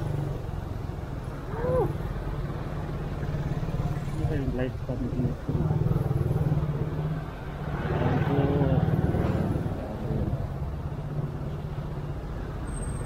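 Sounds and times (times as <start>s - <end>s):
motorcycle engine rumbling: 0.0s - 12.7s
road traffic: 0.0s - 13.0s.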